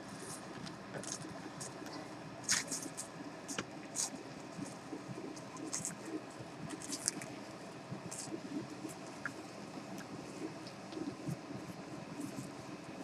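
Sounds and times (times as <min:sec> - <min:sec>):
paws scratching on pads: 0:07.9 - 0:12.6.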